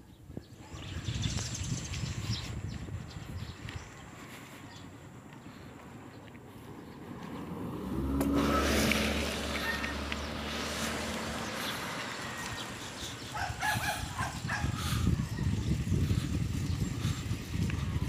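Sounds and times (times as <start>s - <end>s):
car passing by: 6.7s - 14.3s.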